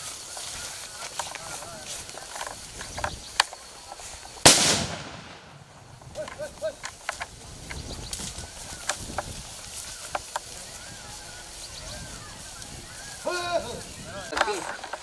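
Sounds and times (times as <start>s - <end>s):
small clicks and rustles: 0.0s - 4.4s, 6.0s - 10.8s, 13.8s - 15.0s
loud explosive bang: 4.5s - 5.8s.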